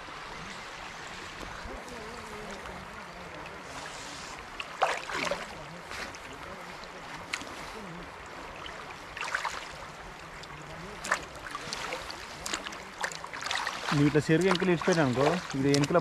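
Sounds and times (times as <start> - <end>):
flowing floodwater: 0.0 - 16.0
wind: 0.0 - 16.0
net splashing through water: 3.6 - 16.0.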